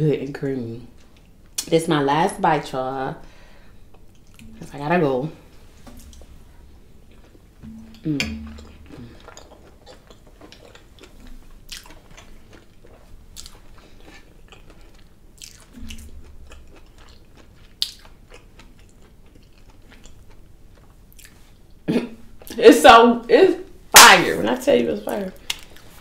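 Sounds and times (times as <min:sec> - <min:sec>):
person chewing food: 0:05.4 - 0:21.8.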